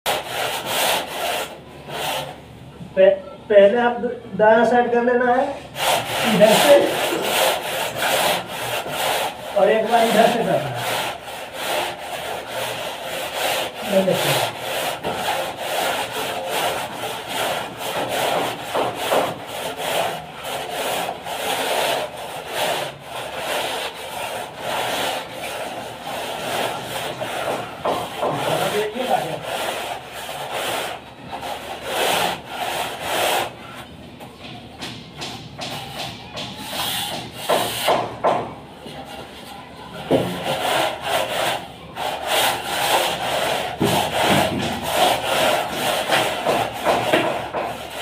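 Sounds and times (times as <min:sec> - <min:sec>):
straightedge scraping wet plaster: 0:05.8 - 0:33.9, 0:39.0 - 0:48.0.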